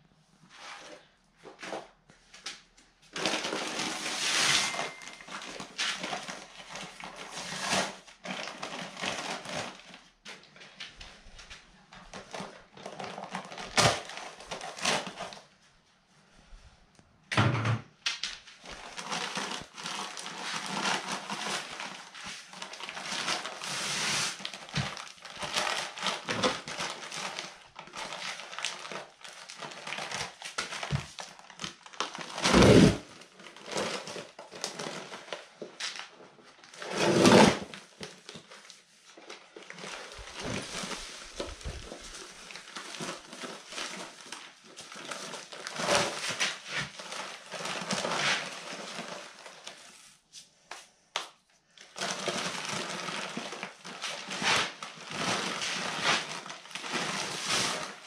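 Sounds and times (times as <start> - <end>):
powder pouring into bucket: 18.6 - 35.3
sack crinkling and rustling: 39.3 - 49.8.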